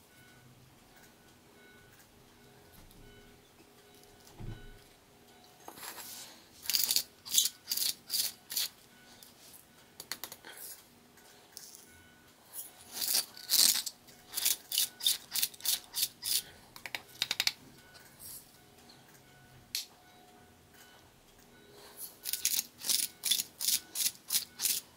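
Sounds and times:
salt grinder crunching crystals: 6.6 - 8.7, 12.9 - 16.4, 22.2 - 24.9.

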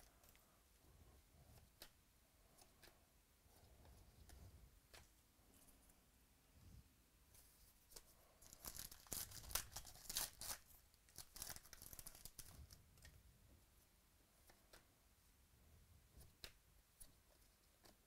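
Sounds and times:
cards rustling: 7.9 - 13.1
foil wrapper tearing: 8.5 - 12.5.

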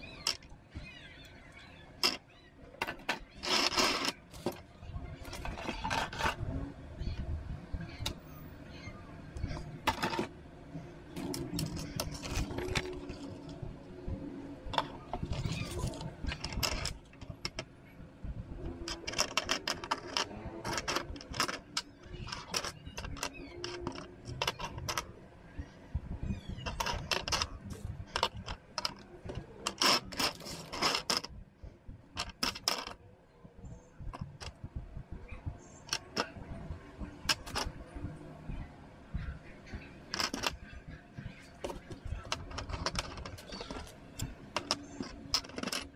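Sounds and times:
plastic parts clicking and clattering: 0.0 - 7.2, 9.4 - 10.4, 11.1 - 13.7, 14.6 - 17.7, 18.6 - 25.2, 26.4 - 31.3, 32.2 - 33.0, 34.1 - 34.6, 35.8 - 36.4, 37.1 - 37.8, 39.7 - 45.9.

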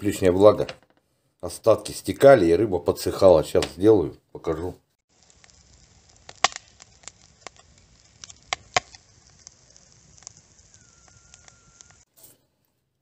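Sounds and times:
low hiss: 3.1 - 12.5
wood fire crackling and popping: 5.1 - 12.1
faint thin whistle: 10.6 - 12.1.

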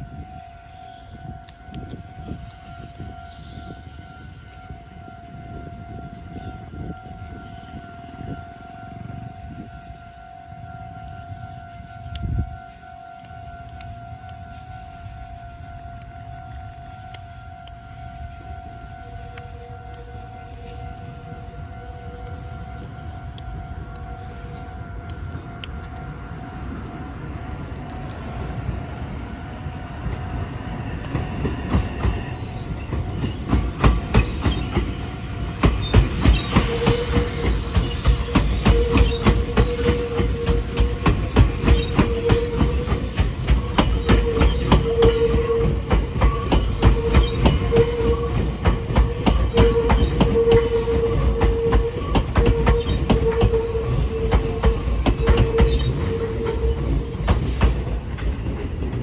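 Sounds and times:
train running past: 0.0 - 59.0
wheels clacking over rail joints: 31.0 - 59.0
high wheel squeal: 31.4 - 58.7.

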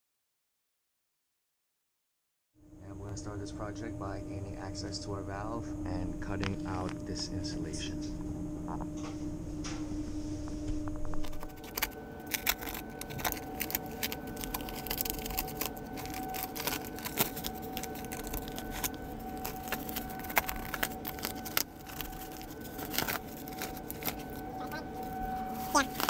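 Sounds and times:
machinery hum: 2.6 - 26.0
foil insulation crackling and rustling: 11.2 - 26.0.

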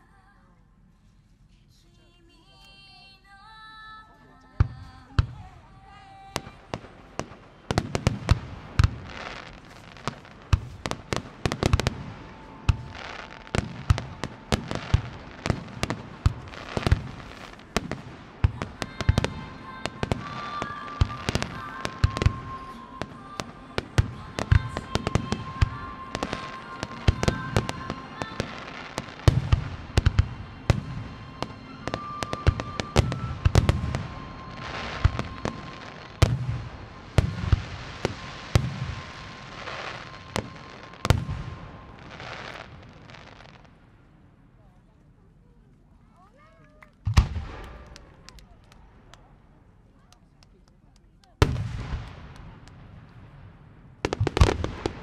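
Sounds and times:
sustained musical notes: 8.5 - 42.9.

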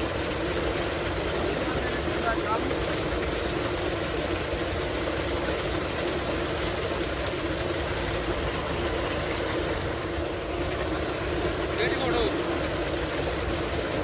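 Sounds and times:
water gushing into tank: 0.0 - 14.0.

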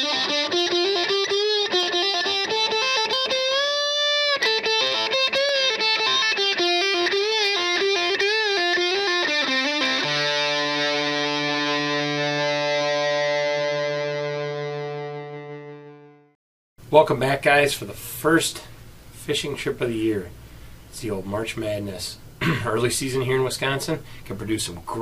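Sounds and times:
distorted electric guitar: 0.0 - 16.3.

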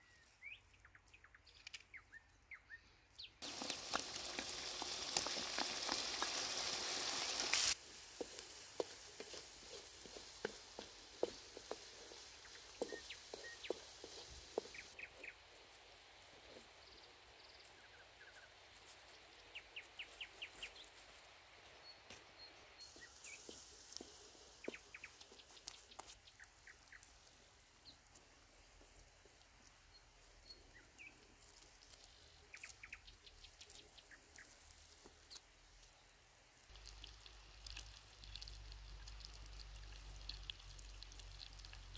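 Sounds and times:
faint sizzling in frying pan: 3.4 - 41.9
birds chirping: 8.3 - 15.5, 21.8 - 27.1.

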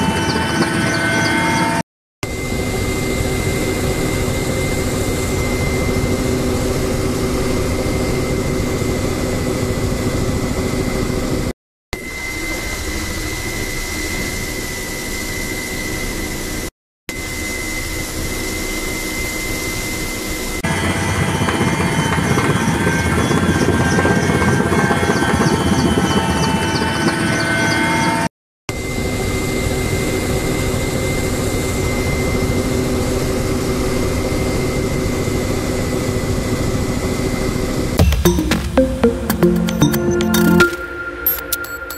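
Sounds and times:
helicopter turbine and rotor drone: 0.0 - 37.9.

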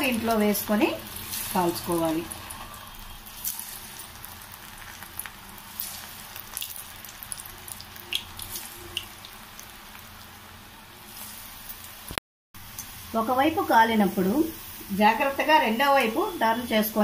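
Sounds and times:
oil sizzling: 0.0 - 17.0
oil pops and crackles: 3.4 - 10.0.

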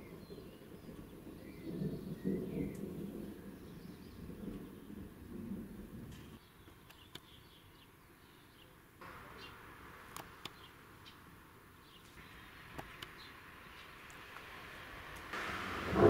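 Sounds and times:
soft hiss: 9.0 - 16.0
low rumble: 13.3 - 16.0.

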